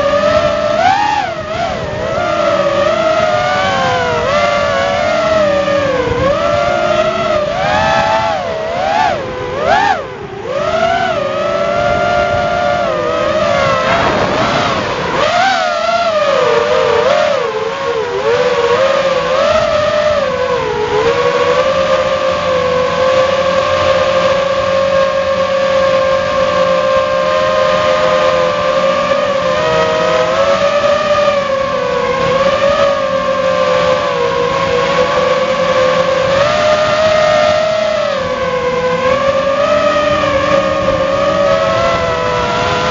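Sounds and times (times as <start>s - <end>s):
quadcopter motors whining: 0.0s - 42.9s.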